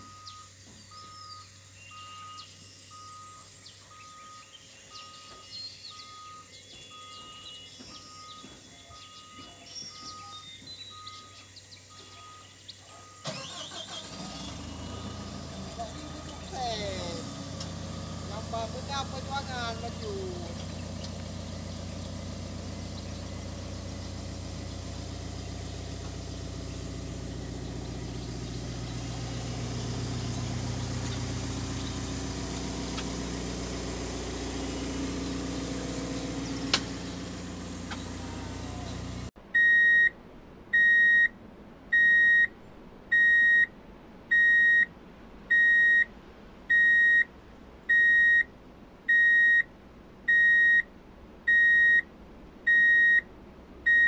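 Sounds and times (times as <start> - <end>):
electronic warning beeper: 0.0 - 13.7
diesel excavator engines idling: 0.0 - 40.1, 44.3 - 48.5, 49.1 - 52.0, 52.6 - 54.0.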